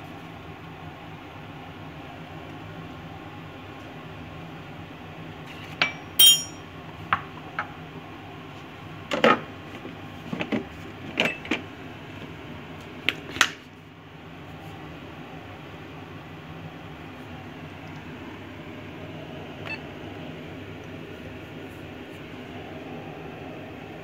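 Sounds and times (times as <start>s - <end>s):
metal and plastic clinking on bowl: 5.8s - 6.6s.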